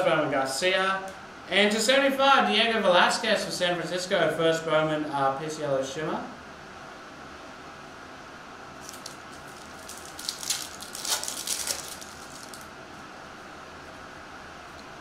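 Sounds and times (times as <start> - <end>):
faint room hum: 0.0 - 15.0
foil wrappers crinkling: 8.8 - 12.7.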